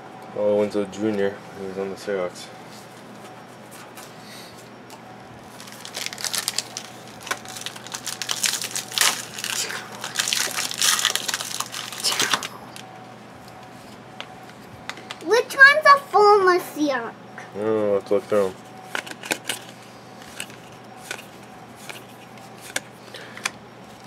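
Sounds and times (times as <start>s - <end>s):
plastic wrapper crinkling: 5.5s - 12.8s.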